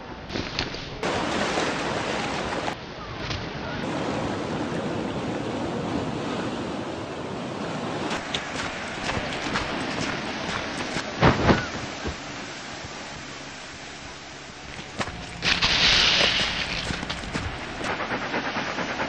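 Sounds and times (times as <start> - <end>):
ocean waves hissing: 3.8 - 19.0.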